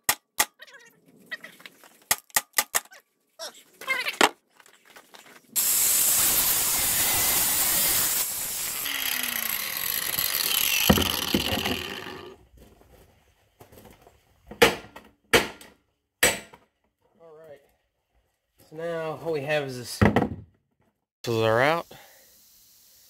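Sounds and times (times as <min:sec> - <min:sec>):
power tool cutting metal: 0:05.6 - 0:12.4.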